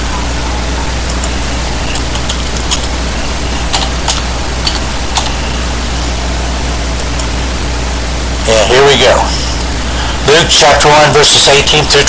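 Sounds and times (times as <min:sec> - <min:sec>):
low mains hum: 0:00.0 - 0:12.0
recording hiss: 0:00.0 - 0:12.0.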